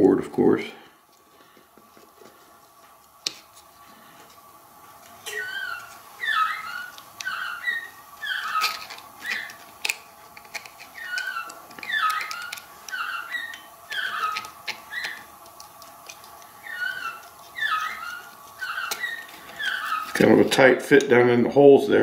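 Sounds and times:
animal squeaky calls: 5.2 - 9.6, 10.8 - 15.4, 16.0 - 20.2.

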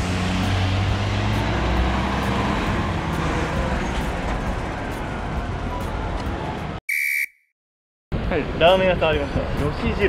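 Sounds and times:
road traffic passing: 0.0 - 6.8.

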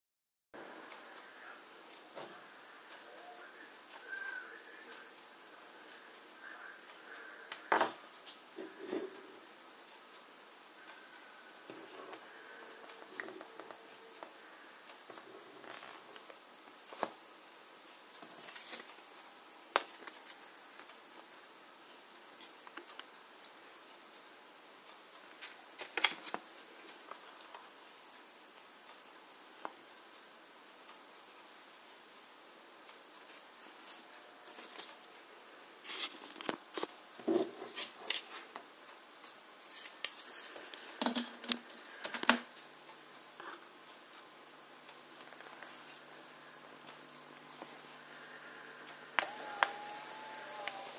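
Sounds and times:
faint low hum: 0.6 - 50.9
paper rustling: 18.2 - 19.0, 35.8 - 36.9.

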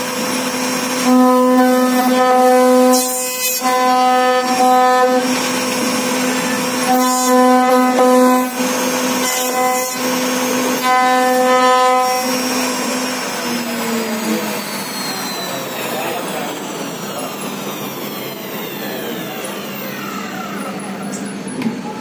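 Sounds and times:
router spindle whine: 0.0 - 22.0.

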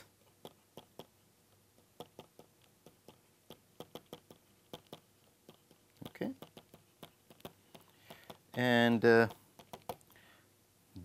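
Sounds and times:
stylus tapping on tablet screen: 1.8 - 10.0.

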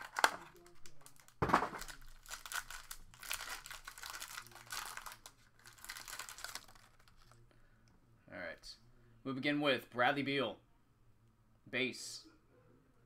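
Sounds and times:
foil wrapper crinkling and tearing: 0.0 - 7.4.

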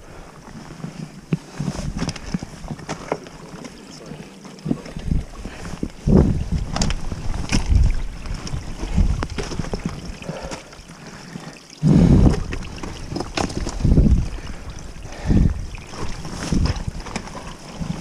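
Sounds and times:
wind buffeting microphone: 4.7 - 10.5, 11.8 - 18.0.

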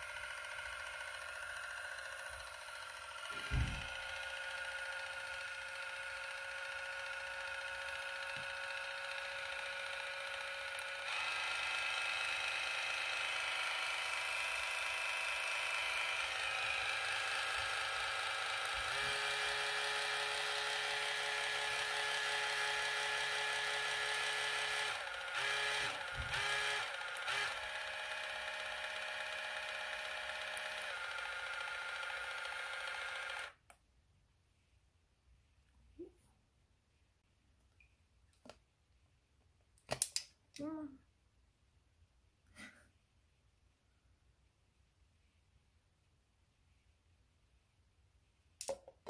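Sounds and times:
water flosser pump motor humming: 0.0 - 33.6.

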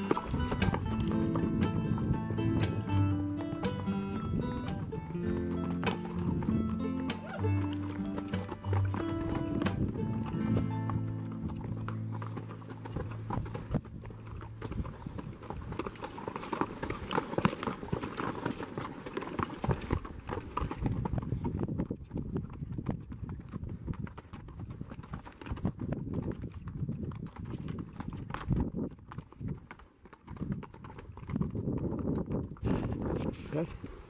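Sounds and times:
background music: 0.0 - 13.3
horse hooves clopping on dirt: 0.0 - 34.0.

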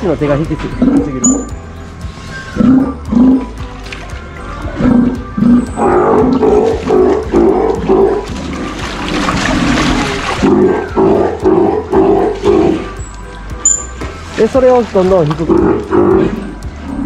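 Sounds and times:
sea lion roaring: 2.5 - 3.6, 4.8 - 13.0, 15.5 - 17.0.

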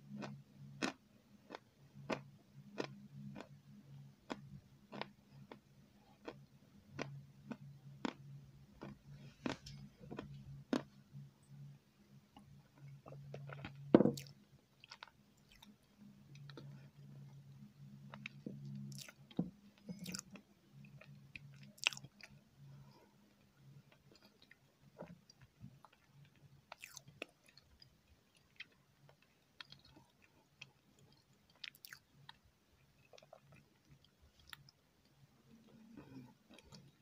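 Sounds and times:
person chewing wet mouth clicks: 18.9 - 19.2.

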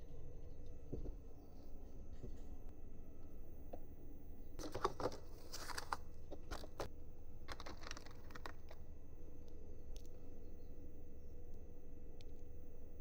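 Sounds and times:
clicks and rustling of small parts: 4.6 - 6.9, 7.5 - 8.8.

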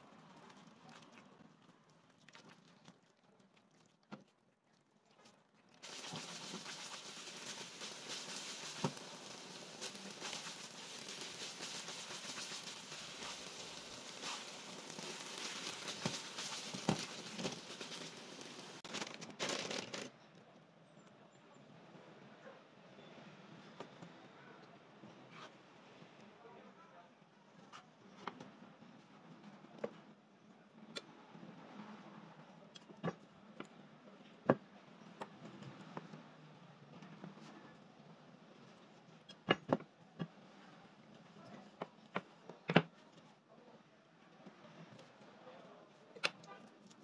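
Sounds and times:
food sizzling in a pan: 5.8 - 18.8
spatula scraping a pan: 5.8 - 18.8.

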